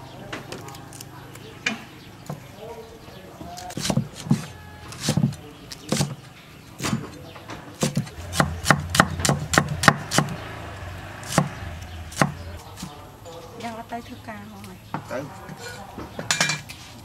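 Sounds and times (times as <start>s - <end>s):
cleaver chopping on wooden block: 3.6s - 6.2s, 7.8s - 10.4s, 11.2s - 12.9s.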